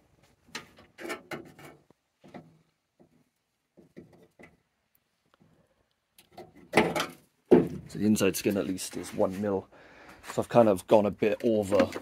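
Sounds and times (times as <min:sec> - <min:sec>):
faint handling noises: 0:07.9 - 0:12.0.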